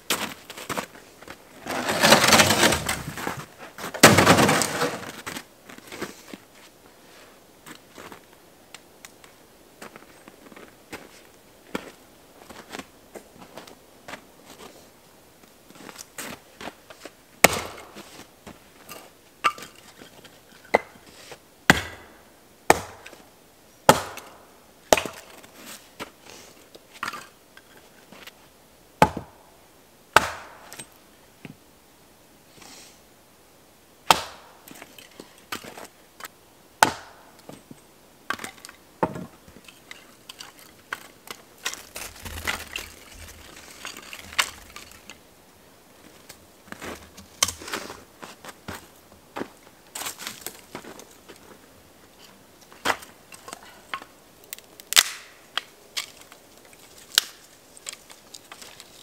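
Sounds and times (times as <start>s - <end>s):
wood cracking and splintering: 1.6s - 5.2s, 40.3s - 45.1s, 54.5s - 55.3s, 56.0s - 59.0s
axe chopping firewood: 4.0s - 4.9s, 17.4s - 18.0s, 21.7s - 23.2s, 23.9s - 24.3s, 24.9s - 25.4s, 29.0s - 29.4s, 30.2s - 30.7s, 34.1s - 34.5s, 36.8s - 37.3s, 54.9s - 55.7s.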